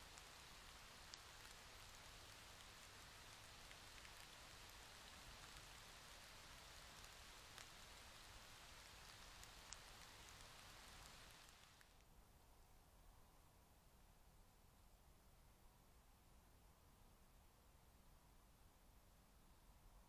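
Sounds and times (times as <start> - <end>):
faint ticks: 0.0 - 12.1
faint steady hiss: 0.0 - 20.0.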